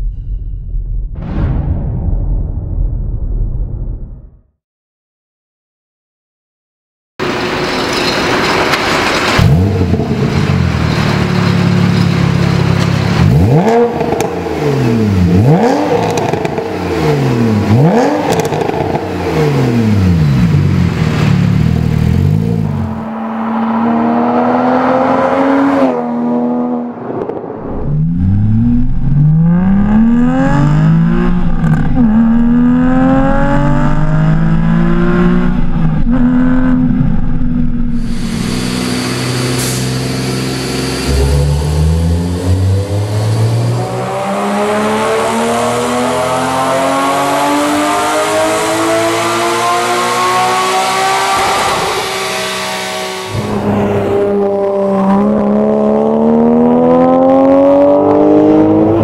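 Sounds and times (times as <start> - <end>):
sports car engine revving: 9.3 - 26.9, 28.0 - 59.0
car accelerating through gears: 22.0 - 26.9, 40.8 - 59.0.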